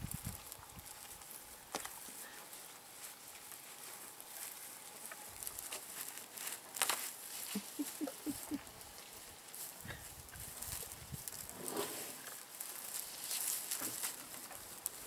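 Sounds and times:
rustling and snapping grass stems: 0.0s - 11.5s, 12.1s - 15.0s
sharp crunch: 5.1s - 7.6s.

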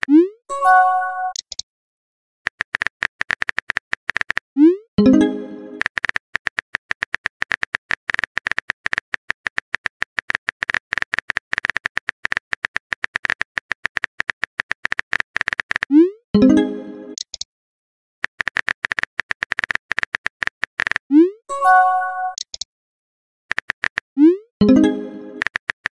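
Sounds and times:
keyboard typing clicks: 1.2s - 1.6s, 2.5s - 4.4s, 5.0s - 17.5s, 18.2s - 21.2s, 22.2s - 22.7s, 23.5s - 25.9s
message sent pop: 23.6s - 25.8s.

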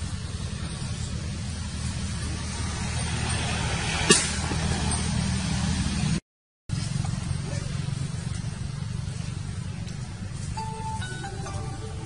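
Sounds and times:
low rumble and hiss: 0.0s - 3.9s.

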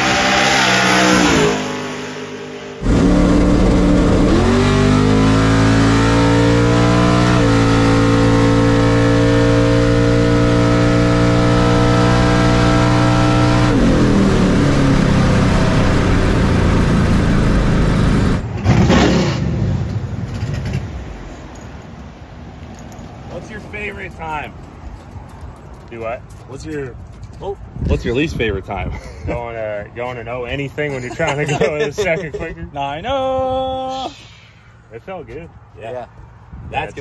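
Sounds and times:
engine at full throttle: 0.0s - 19.8s.

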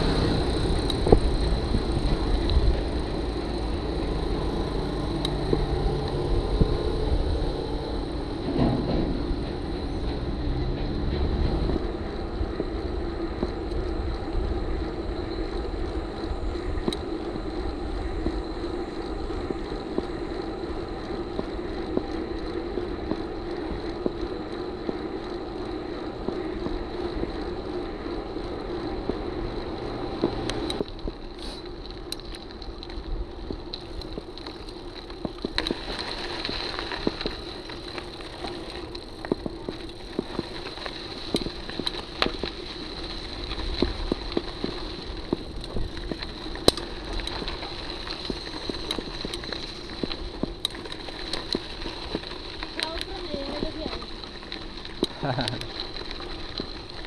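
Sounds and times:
tyre and wind rush: 0.0s - 32.0s
bike clicks and rattles: 0.0s - 57.0s.

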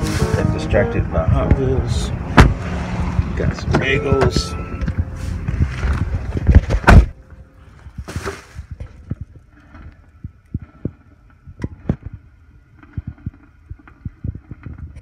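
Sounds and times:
loud low thump: 1.3s - 7.2s
rustling: 4.2s - 10.1s
coffee maker gurgling: 9.0s - 15.0s.

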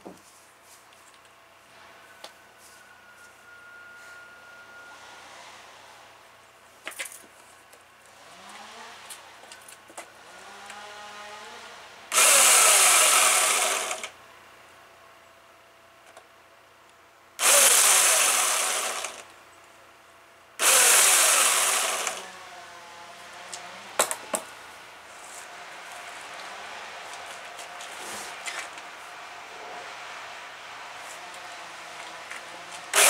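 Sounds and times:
electric chainsaw bursts: 10.3s - 14.2s, 17.4s - 19.3s, 20.6s - 22.4s.

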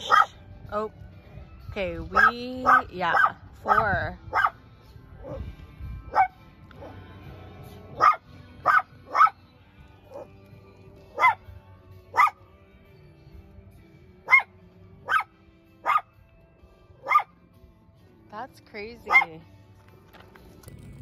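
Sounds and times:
dog barking: 0.0s - 0.4s, 2.2s - 4.6s, 5.2s - 5.5s, 6.1s - 7.0s, 8.0s - 9.4s, 11.1s - 11.5s, 12.1s - 12.4s, 14.2s - 16.2s, 17.0s - 17.4s, 19.1s - 19.4s.

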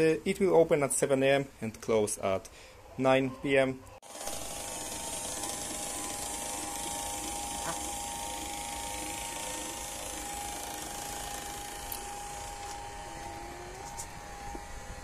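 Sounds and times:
electric actuator motor whining: 4.0s - 15.0s.

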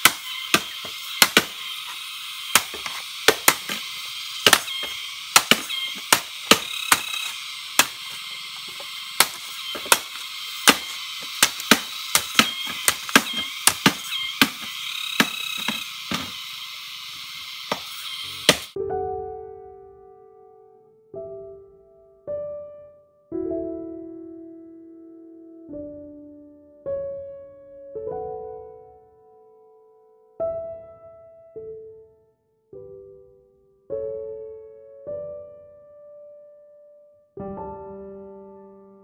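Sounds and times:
chopping on wood: 0.0s - 16.4s, 17.7s - 18.8s.

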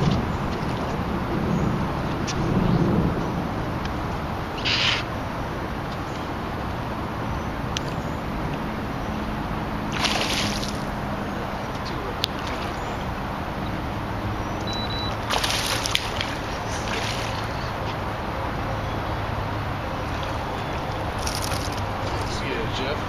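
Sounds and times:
distant highway traffic: 0.0s - 23.0s
wind: 0.0s - 23.0s
fishing lure splashing on water: 9.9s - 10.9s, 15.2s - 17.6s.

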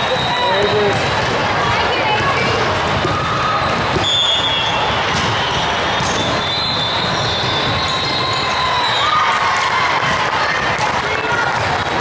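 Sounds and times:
din of play and spectators: 0.0s - 12.0s
volleyball being struck: 2.4s - 8.2s.

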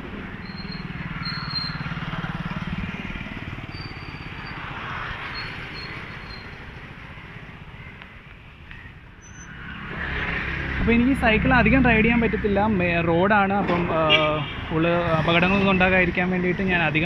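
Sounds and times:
street traffic noise: 0.0s - 17.0s
motorcycle engine passing: 0.5s - 7.8s.

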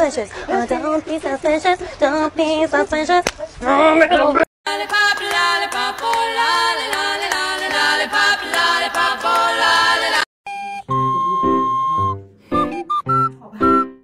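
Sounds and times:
music with held high note: 10.5s - 14.0s.

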